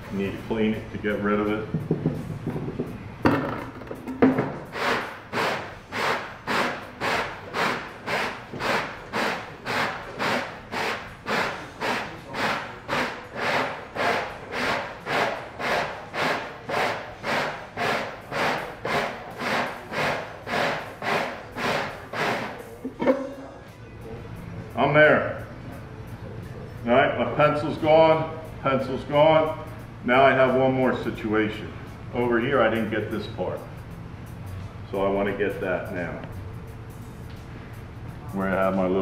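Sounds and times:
sandpaper grinding wooden rim: 0:04.7 - 0:22.7.

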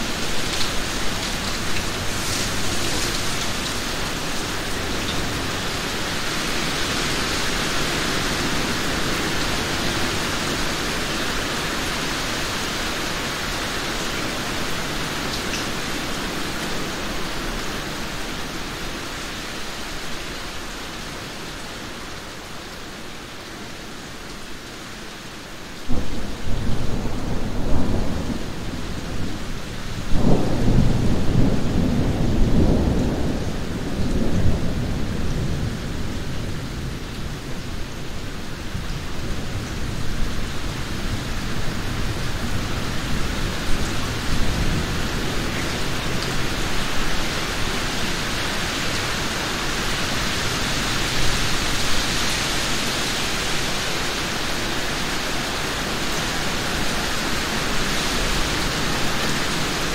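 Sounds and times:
steady rain hiss: 0:00.0 - 0:59.9
thunder clap and rumble: 0:25.9 - 0:37.2.

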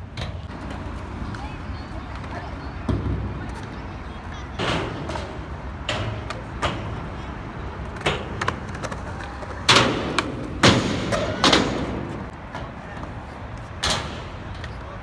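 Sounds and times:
skateboard wheels rolling on concrete: 0:00.0 - 0:15.0
skateboard clacks on ground: 0:04.6 - 0:13.2.

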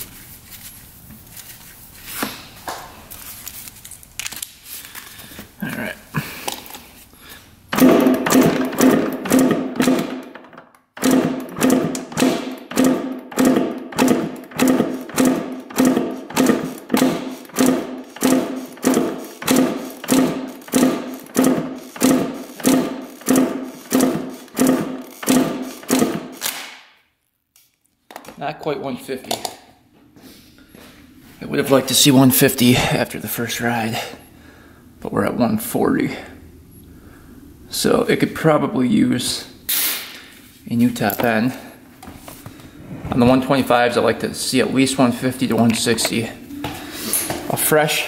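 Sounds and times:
engine being kicked over: 0:07.7 - 0:26.4.

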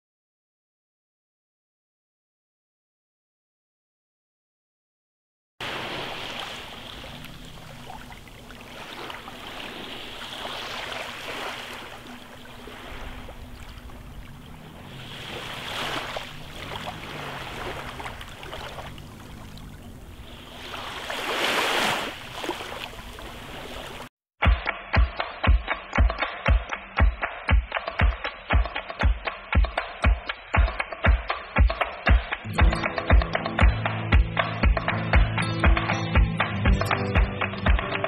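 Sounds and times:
small waves washing onto beach: 0:05.6 - 0:24.1.

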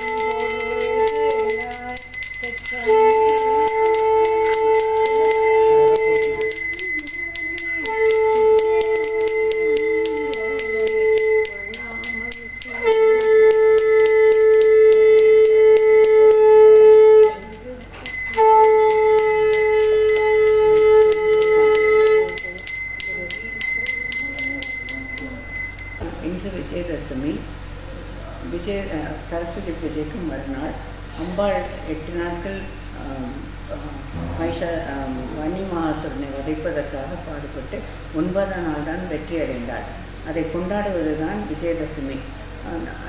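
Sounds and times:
brass hand bell ringing rapidly: 0:00.0 - 0:26.0
conch blasts: 0:02.6 - 0:07.0, 0:12.5 - 0:22.4.

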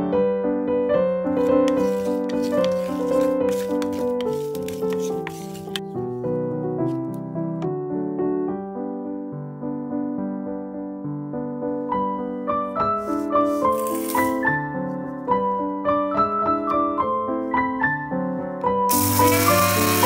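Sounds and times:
piano music: 0:00.0 - 0:20.0
electric spice grinder whirring: 0:18.9 - 0:20.0.

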